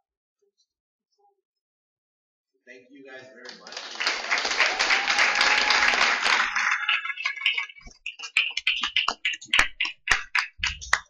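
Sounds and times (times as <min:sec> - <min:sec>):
audience applause: 0:03.4 - 0:11.0
single claps: 0:03.4 - 0:11.0.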